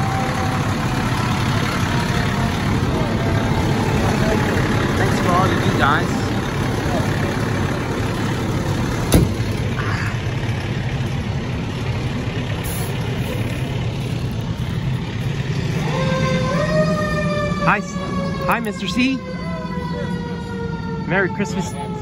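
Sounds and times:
siren rising: 0.0 - 8.0, 15.5 - 22.0
diesel engine idling: 0.0 - 22.0.

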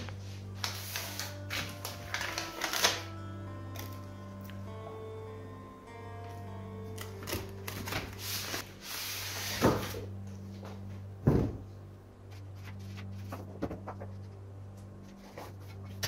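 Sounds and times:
paper wrapping rustling: 0.0 - 4.0, 6.9 - 10.0.

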